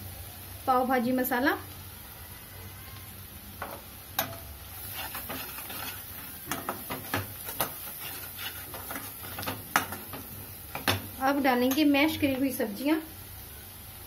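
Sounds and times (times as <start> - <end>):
light sizzle: 0.0 - 14.0
spatula scraping metal pan: 4.8 - 11.0.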